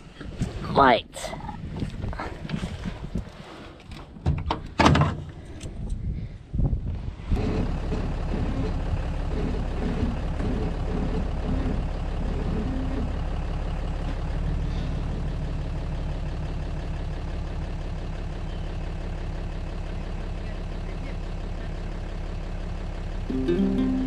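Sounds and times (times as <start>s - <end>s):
pickup engine idling: 7.7s - 24.0s.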